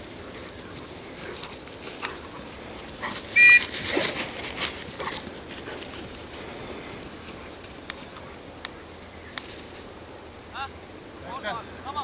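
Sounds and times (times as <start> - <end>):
dog running through grass: 0.0 - 8.2
loud high-pitched call: 3.4 - 3.7.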